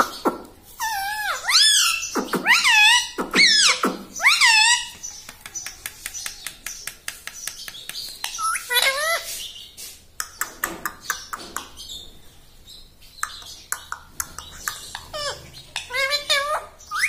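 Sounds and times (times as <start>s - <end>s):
parakeet call: 0.0s - 5.1s.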